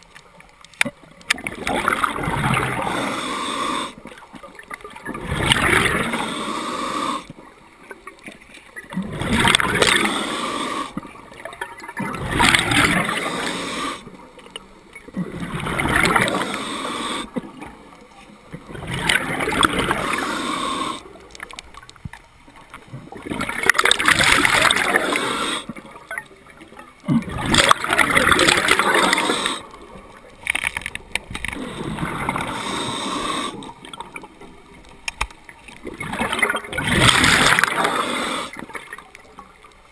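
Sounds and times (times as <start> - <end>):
bubbles rushing on exhale: 1.4 - 3.1, 5.0 - 6.3, 8.8 - 14.0, 15.1 - 16.6, 18.5 - 21.1, 22.9 - 25.8, 27.1 - 30.1, 31.5 - 34.3, 35.8 - 38.8
regulator hiss on inhale: 2.7 - 4.3, 5.9 - 7.5, 9.5 - 11.2, 12.9 - 14.3, 16.0 - 17.5, 19.6 - 21.4, 24.5 - 25.9, 28.6 - 29.9, 31.4 - 33.8, 37.5 - 38.8.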